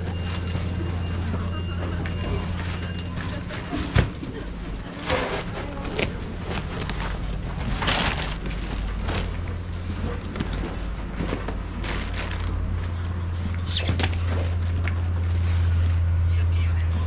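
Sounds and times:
low market hum: 0:00.0 - 0:17.0
short falling squeal: 0:13.6 - 0:14.3.

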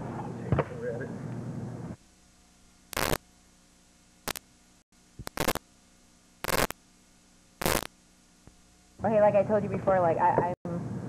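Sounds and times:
faint electrical hum: 0:00.0 - 0:11.0
harsh static hiss bursts: 0:02.0 - 0:09.0.

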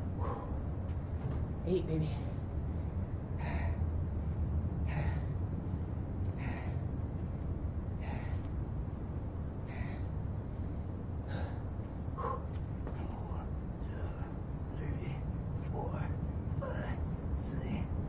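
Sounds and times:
man breathing hard: 0:00.0 - 0:00.9, 0:02.6 - 0:14.7
steady low rumble: 0:00.0 - 0:18.0.

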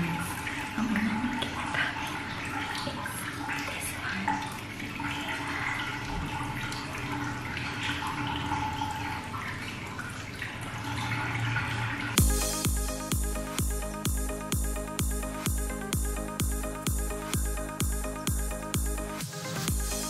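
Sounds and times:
water running from a tap: 0:00.0 - 0:20.0
electronic music with a beat: 0:12.2 - 0:20.0.

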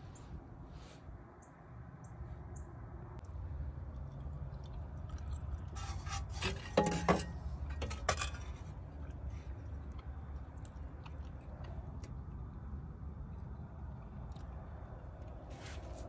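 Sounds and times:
steady low rumble: 0:00.0 - 0:05.8, 0:07.4 - 0:16.0
metal bracket clinking and scraping: 0:05.8 - 0:08.7.

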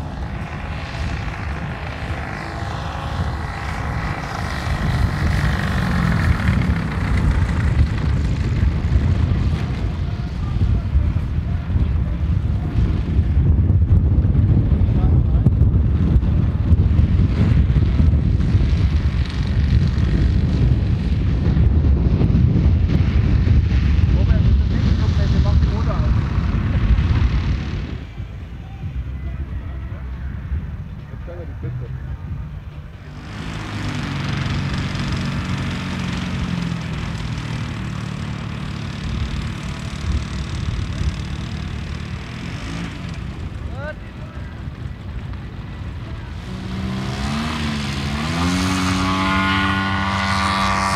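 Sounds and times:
model plane engine running: 0:00.0 - 0:11.5, 0:33.1 - 0:50.9
low bumps: 0:00.0 - 0:50.9
wind buffeting microphone: 0:00.0 - 0:50.9.

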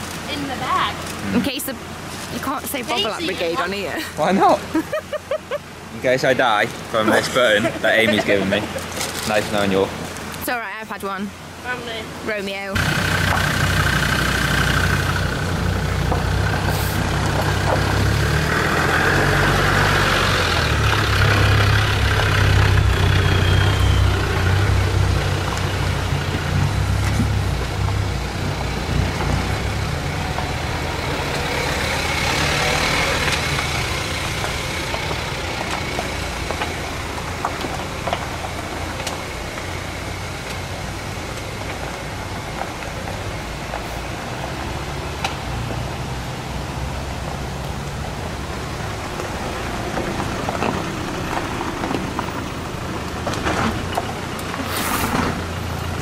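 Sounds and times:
diesel engine rumbling: 0:00.0 - 0:56.0
tyres on rocky gravel: 0:06.2 - 0:10.8, 0:14.7 - 0:44.5, 0:48.6 - 0:56.0.

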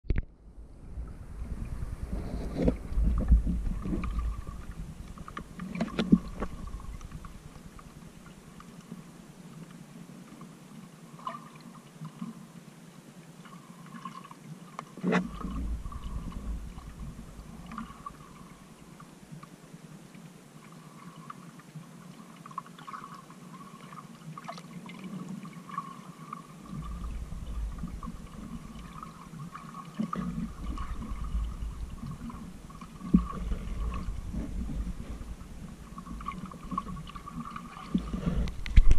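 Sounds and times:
low underwater rumble: 0:00.0 - 0:09.5, 0:15.1 - 0:19.4, 0:26.6 - 0:38.9
muffled underwater sloshing: 0:00.1 - 0:38.9
faint crackling: 0:26.6 - 0:38.9.

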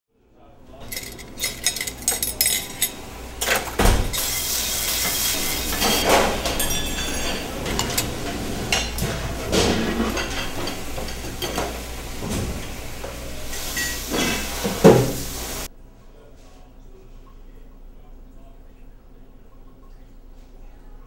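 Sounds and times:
dishes and pans clattering: 0:00.8 - 0:15.7
steady hiss: 0:04.1 - 0:06.5, 0:10.1 - 0:15.7.

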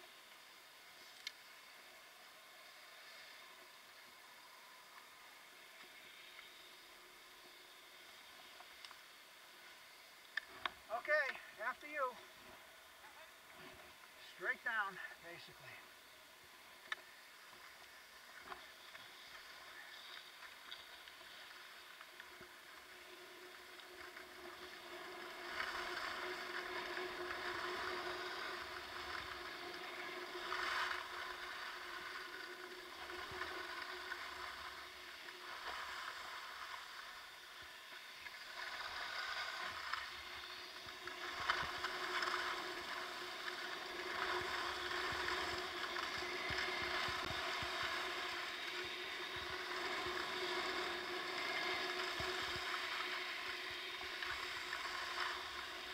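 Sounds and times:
skis scraping over snow: 0:16.5 - 0:55.9.

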